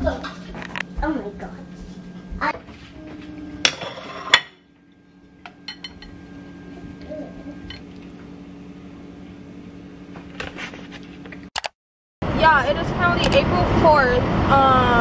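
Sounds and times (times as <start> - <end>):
steady low hum: 0.0 - 11.5
metal spatula clinking on glass dish: 5.7 - 6.1.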